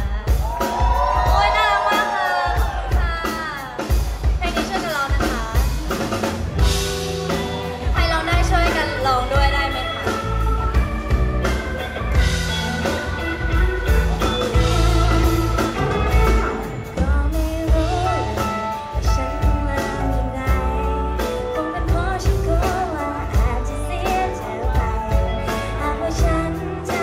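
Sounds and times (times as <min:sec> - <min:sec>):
pop band with drums: 0:00.0 - 0:27.0
woman singing into microphone: 0:16.8 - 0:27.0.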